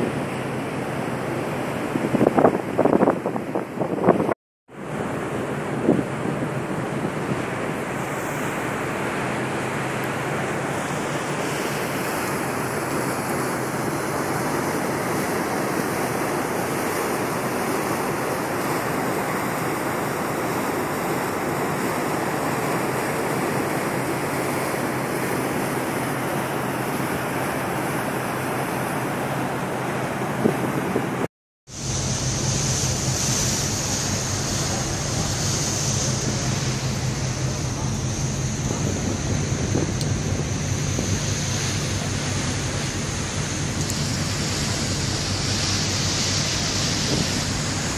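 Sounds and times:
churning wake water: 0:00.0 - 0:47.9
wind buffeting microphone: 0:01.1 - 0:23.7, 0:29.7 - 0:47.9
low even hum: 0:31.8 - 0:47.9.

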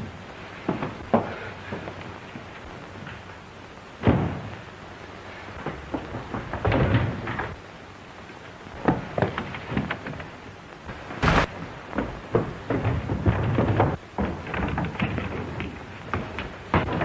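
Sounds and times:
irregular knocks and thuds: 0:00.0 - 0:03.2, 0:04.0 - 0:04.6, 0:05.6 - 0:07.6, 0:11.2 - 0:17.0
steady hiss: 0:00.0 - 0:17.0
short loud crack: 0:11.2 - 0:11.6.

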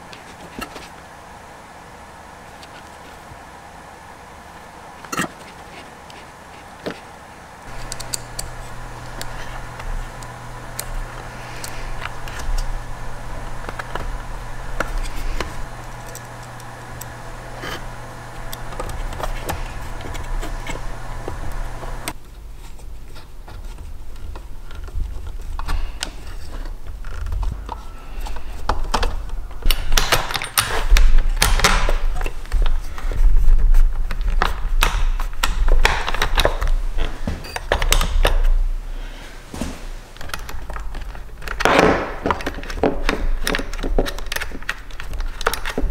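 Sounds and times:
steady low hum: 0:00.0 - 0:45.9
hand tools clicking and rattling: 0:07.6 - 0:22.2.

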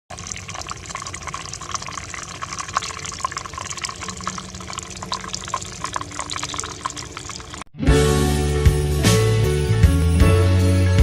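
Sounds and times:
water splashing into pool: 0:00.1 - 0:07.7.

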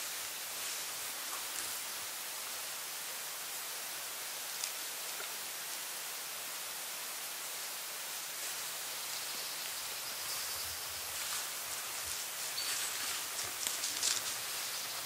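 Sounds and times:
steady background hiss: 0:00.0 - 0:15.0
faint rustles: 0:10.3 - 0:15.0.

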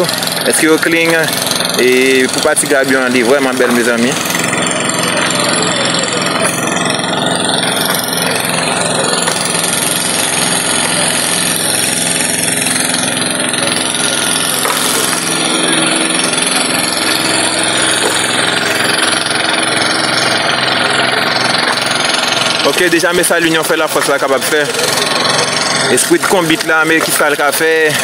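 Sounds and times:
machinery engine running: 0:00.0 - 0:28.0
loud constant rushing noise: 0:05.8 - 0:28.0.

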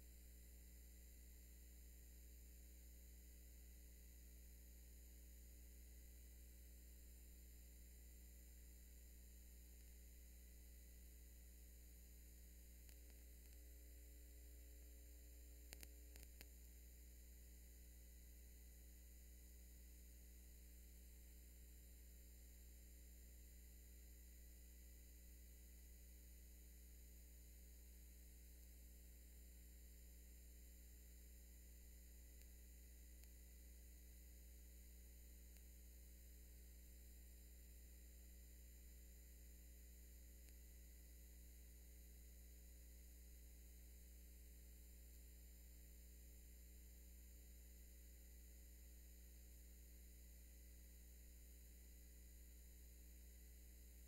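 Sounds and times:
low electrical hum: 0:00.0 - 0:54.0
faint clicks: 0:12.7 - 0:13.9, 0:14.8 - 0:16.7, 0:32.2 - 0:33.7, 0:40.4 - 0:40.7.

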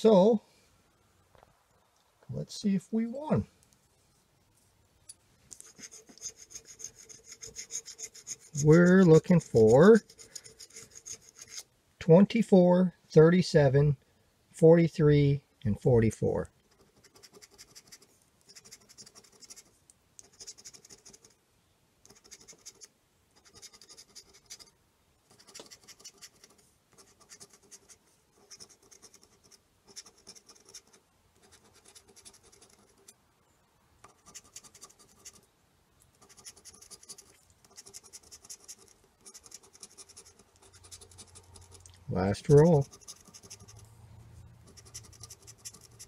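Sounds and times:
scratching lottery ticket: 0:05.6 - 0:11.7, 0:16.7 - 0:21.4, 0:22.0 - 0:33.2, 0:34.1 - 0:35.4, 0:36.1 - 0:43.9, 0:44.6 - 0:46.0.

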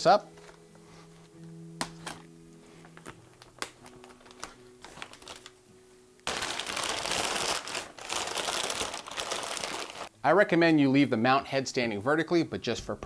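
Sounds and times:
soft background music: 0:00.0 - 0:13.0
plastic bag crinkling: 0:03.0 - 0:05.6, 0:06.3 - 0:10.1.

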